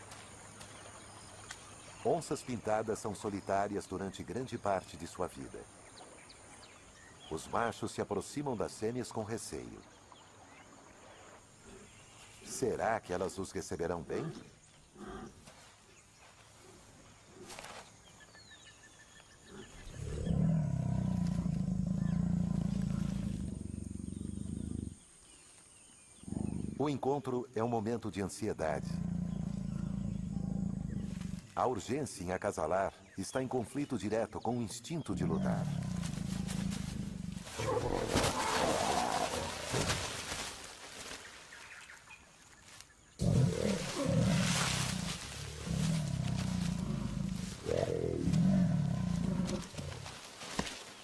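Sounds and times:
jaguar growling: 0:19.4 - 0:25.0, 0:26.2 - 0:26.8, 0:28.6 - 0:31.5, 0:35.1 - 0:39.9, 0:43.2 - 0:50.2.

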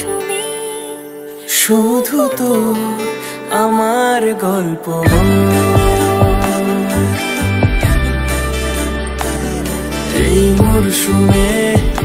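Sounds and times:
slow tender melody: 0:00.0 - 0:12.0
held low note: 0:05.1 - 0:10.8.

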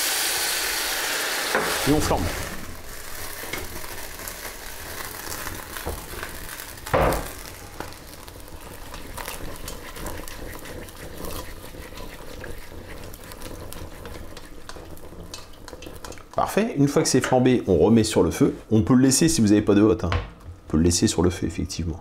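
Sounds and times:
meat sizzling in hot fat: 0:00.0 - 0:17.1.

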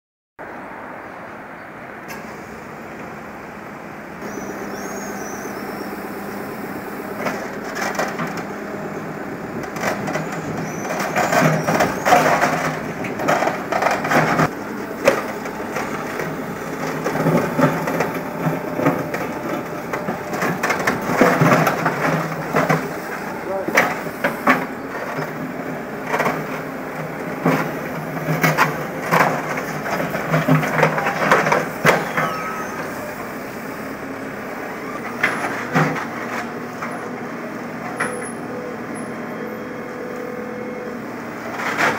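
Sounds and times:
diesel engine running: 0:00.4 - 0:41.9
bucket scraping through asphalt: 0:09.9 - 0:33.2.

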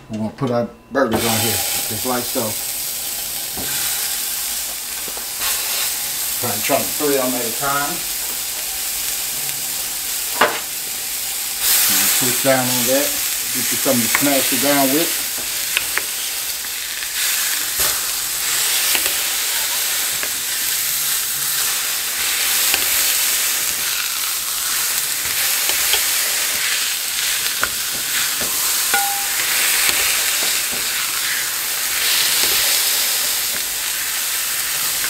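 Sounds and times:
burger patties sizzling on griddle: 0:01.2 - 0:35.0.

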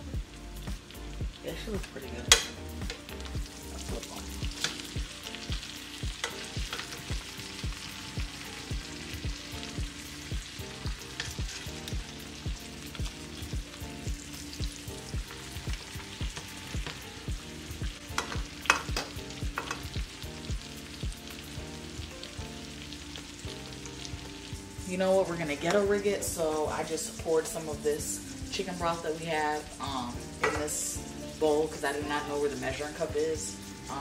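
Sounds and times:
meat sizzling in a skillet: 0:00.0 - 0:34.0
quiet background music with beat: 0:00.0 - 0:34.0
metal tongs clicking on a pan: 0:01.8 - 0:03.0, 0:04.5 - 0:04.9, 0:06.2 - 0:07.1, 0:18.1 - 0:20.0.

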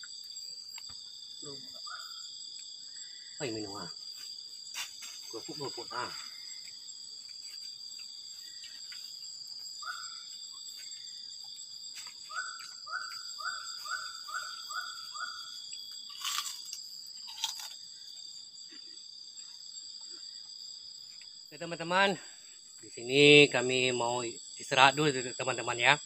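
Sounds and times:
insects trilling: 0:00.0 - 0:26.0
sharp crunch-like noises: 0:16.0 - 0:17.8.

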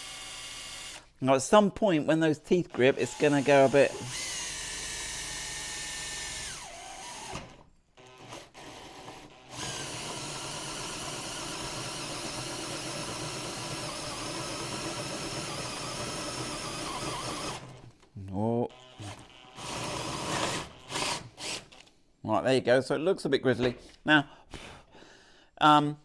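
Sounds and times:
drill hole saw cutting metal: 0:00.0 - 0:01.0, 0:02.8 - 0:17.8, 0:18.7 - 0:21.8.

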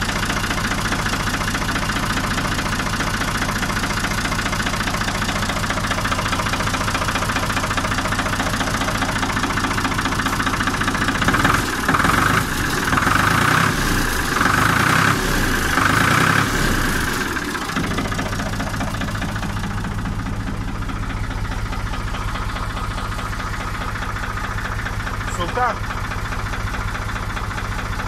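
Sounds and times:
tractor diesel engine revving: 0:00.0 - 0:28.0.

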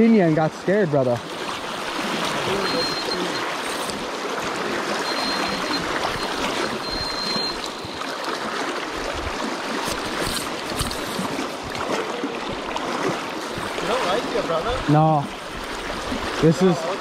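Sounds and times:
river water rushing: 0:00.2 - 0:17.0.

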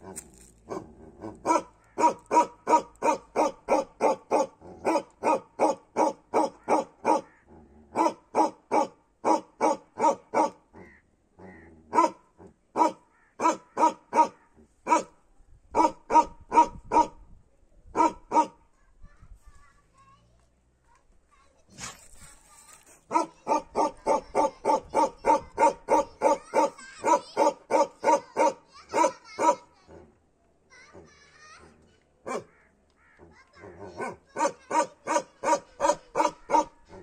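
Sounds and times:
dog barking: 0:00.7 - 0:07.4, 0:08.0 - 0:10.6, 0:11.9 - 0:12.2, 0:12.8 - 0:15.2, 0:15.8 - 0:17.2, 0:18.0 - 0:18.6, 0:23.1 - 0:29.7, 0:32.2 - 0:32.6, 0:33.9 - 0:36.8.

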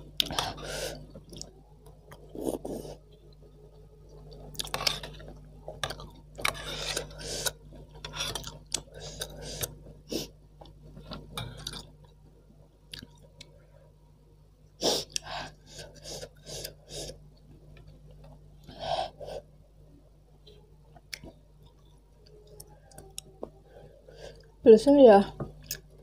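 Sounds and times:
chewing: 0:00.2 - 0:03.4, 0:04.1 - 0:09.8, 0:12.9 - 0:13.5, 0:20.9 - 0:23.6.

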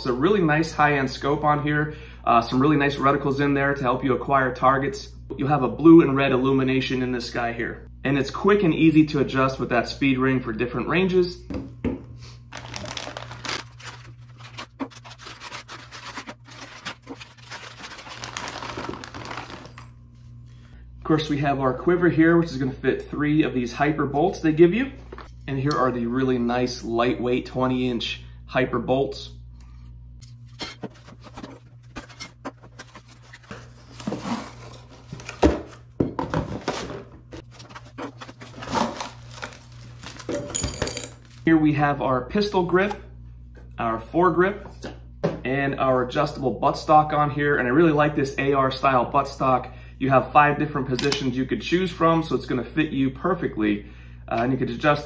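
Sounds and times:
low steady hum: 0:00.0 - 0:55.0
plastic bags rustling: 0:12.4 - 0:20.4, 0:36.4 - 0:41.5.

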